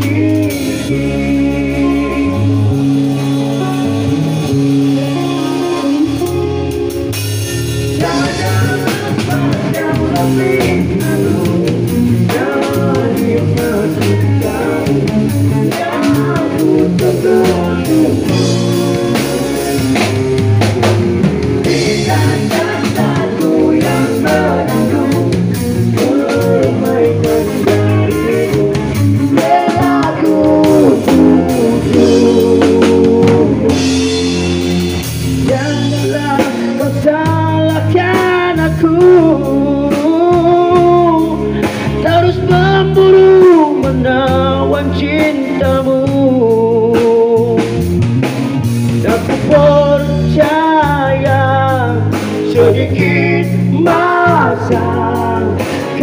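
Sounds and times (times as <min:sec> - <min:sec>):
bass guitar: 0:00.0 - 0:56.0
drum kit: 0:00.0 - 0:56.0
electric guitar solo: 0:01.7 - 0:09.7.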